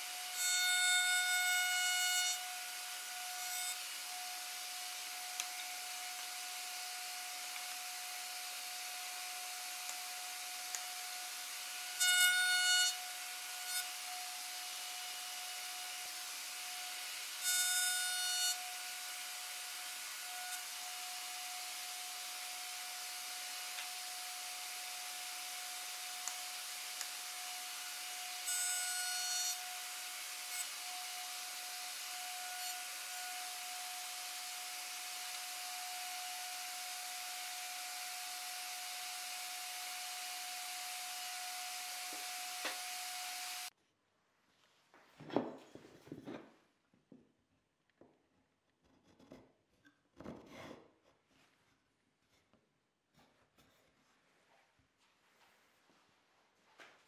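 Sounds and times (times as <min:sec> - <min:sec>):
router bit cutting wood: 0:00.0 - 0:43.7.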